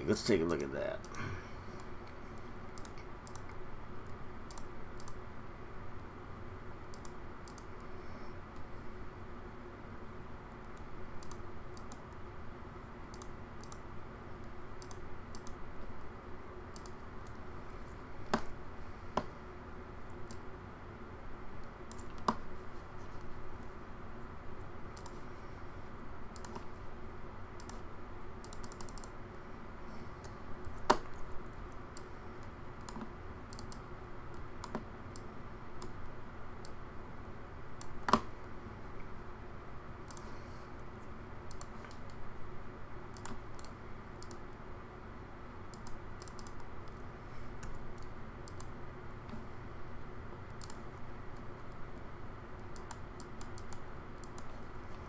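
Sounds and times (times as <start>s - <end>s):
faint steady hum: 0.0s - 55.0s
keyboard and mouse clicks: 2.4s - 5.2s, 6.9s - 7.9s, 10.7s - 12.2s, 13.1s - 13.8s, 14.4s - 15.6s, 16.7s - 17.4s, 18.3s - 18.6s, 21.6s - 22.5s, 24.9s - 25.2s, 26.3s - 26.7s, 27.6s - 27.8s, 28.4s - 29.2s, 30.2s - 36.0s, 40.0s - 40.3s, 41.5s - 42.2s, 43.1s - 44.4s, 45.7s - 47.0s, 47.6s - 48.7s, 50.5s - 54.6s.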